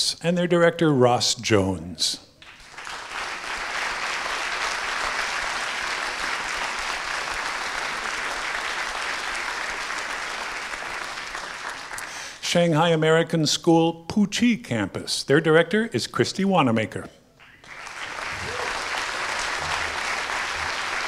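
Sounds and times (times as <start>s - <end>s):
audience applauding: 2.4s - 12.4s, 17.4s - 21.0s.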